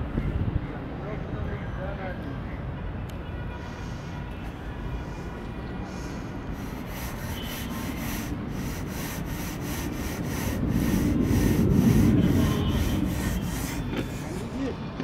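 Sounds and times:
jet engines rumbling: 4.8 - 15.0.

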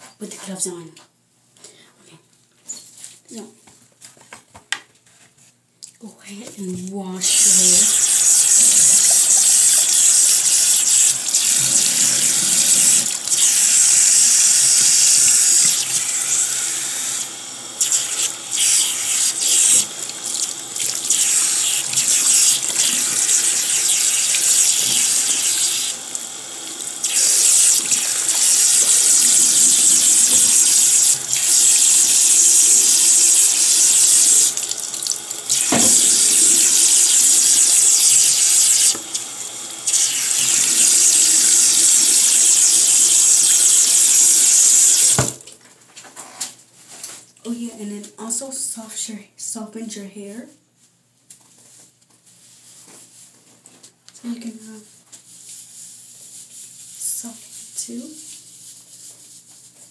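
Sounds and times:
tap water splashing on hair: 17.8 - 25.6, 34.5 - 39.2, 45.0 - 45.6.

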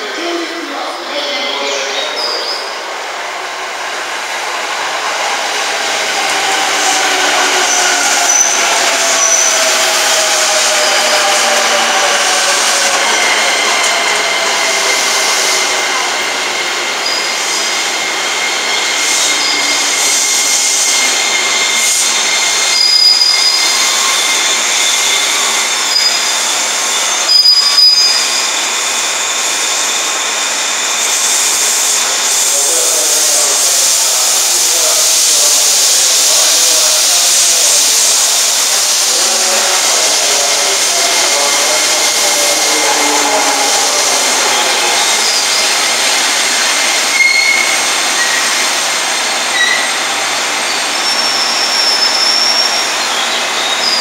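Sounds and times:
brief high squeaks: 47.1 - 48.6, 49.6 - 49.9.

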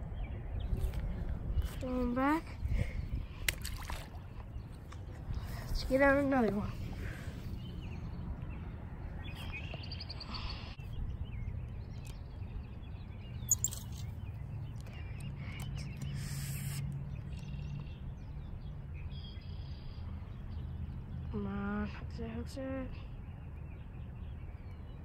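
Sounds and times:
birds chirping: 0.0 - 25.0
sharp click: 13.5 - 14.1.

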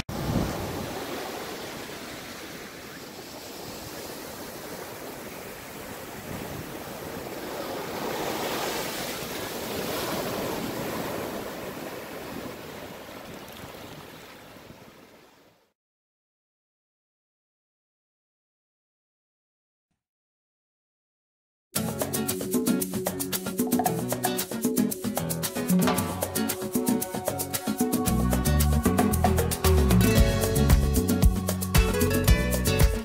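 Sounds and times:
ocean waves breaking on beach: 0.0 - 15.5.

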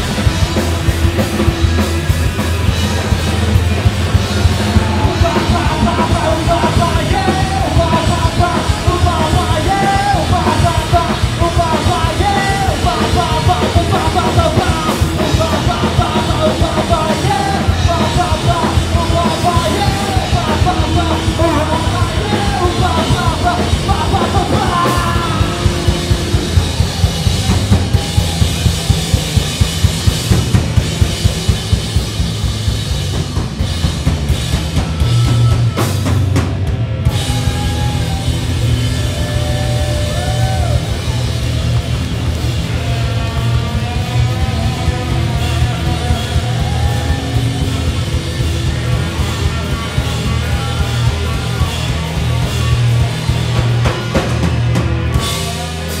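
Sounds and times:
live rock band playing: 0.0 - 56.0.

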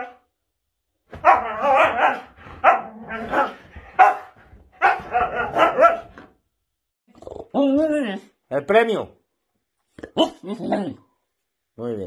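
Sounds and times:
dog moaning and grumbling: 1.2 - 3.8, 10.1 - 11.1.

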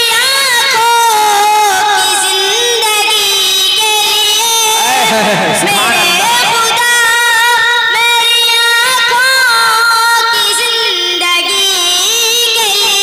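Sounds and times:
boy singing devotional song: 0.0 - 13.0.

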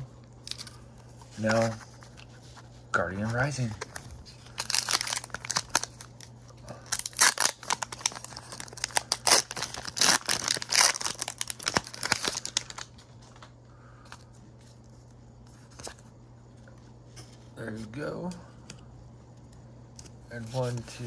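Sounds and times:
foil wrapper tearing and crinkling: 4.4 - 13.0.

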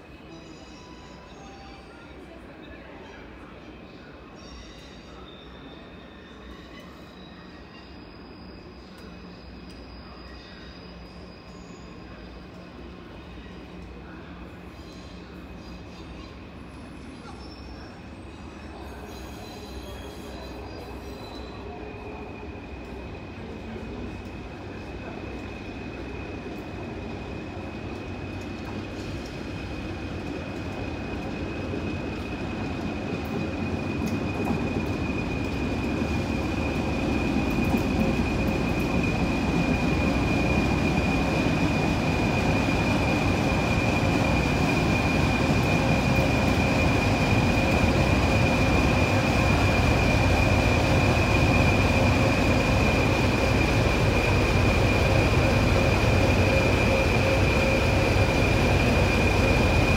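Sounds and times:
diesel locomotives rumbling: 22.7 - 59.9.

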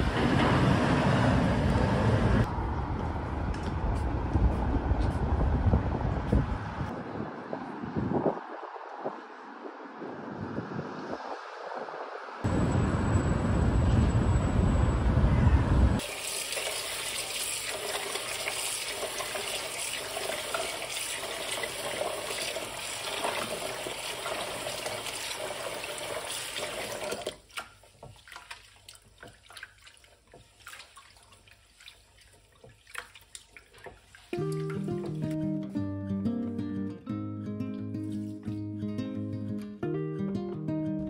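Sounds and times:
wind rumbling on microphone: 0.0 - 16.0
kitchen tap running into pot: 16.0 - 27.4
hand stirring rice in water: 16.1 - 34.8.

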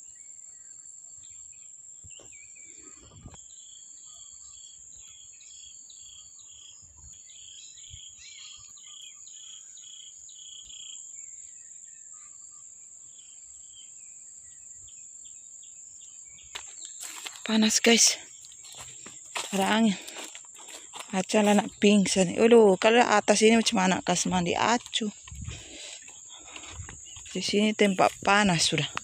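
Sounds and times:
insects droning: 0.0 - 29.0.

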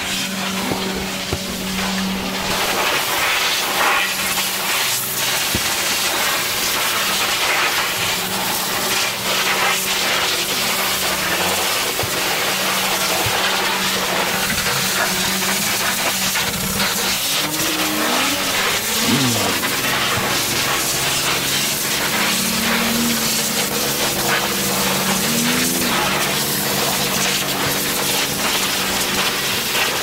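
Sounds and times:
low hum rising and falling: 0.0 - 3.8, 13.6 - 29.6
pressure washer spray hissing: 0.0 - 30.0.

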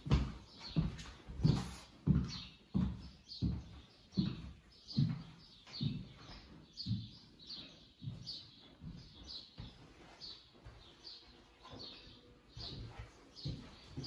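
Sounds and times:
footsteps on wooden floor: 0.0 - 14.0.

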